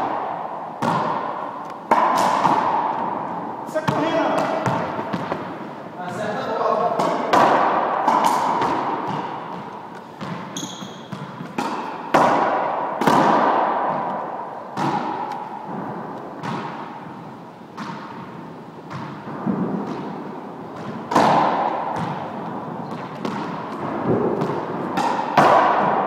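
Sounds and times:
squash ball cracks: 0.0s - 5.6s, 6.9s - 17.1s, 17.7s - 26.0s
high squeak: 10.6s - 11.1s.

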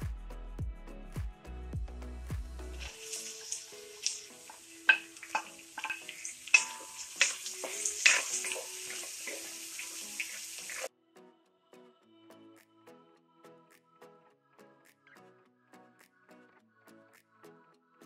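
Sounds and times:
onions sizzling in oil: 2.8s - 10.9s
spatula clacking against pan: 2.9s - 10.9s.

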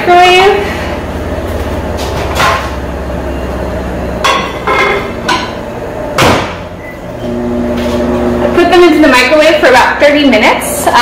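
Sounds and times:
loud knock: 6.2s - 6.7s.

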